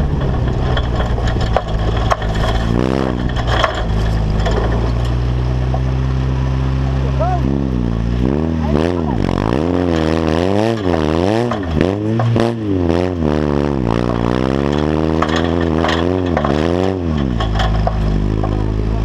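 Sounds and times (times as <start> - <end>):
frame knocks and rattles: 0.0 - 6.0, 13.9 - 18.7
buggy engine revving: 0.0 - 19.0.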